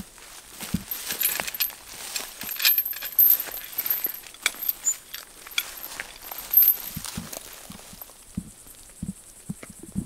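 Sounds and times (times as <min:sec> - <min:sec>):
metallic clinks of wire tensioner: 0:00.8 - 0:08.1.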